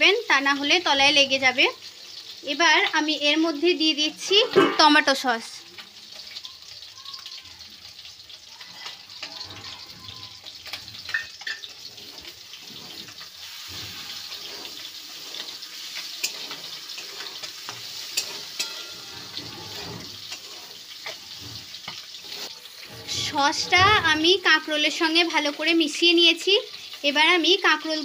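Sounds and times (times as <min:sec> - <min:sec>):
vegetables sizzling in a pan: 0:00.0 - 0:28.0
spatula scraping a pan: 0:03.7 - 0:05.2, 0:08.0 - 0:25.7.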